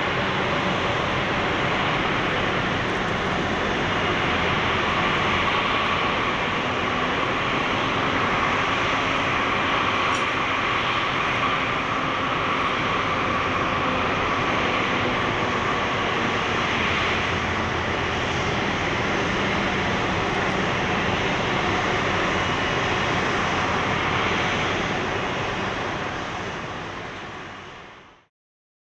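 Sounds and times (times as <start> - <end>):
jet engines running: 0.0 - 28.3.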